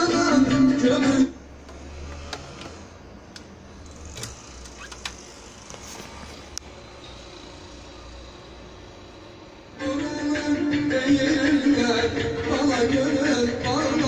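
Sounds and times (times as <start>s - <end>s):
amplifier hum and hiss: 0.0s - 14.0s
connectors and controls clicking: 1.7s - 6.7s.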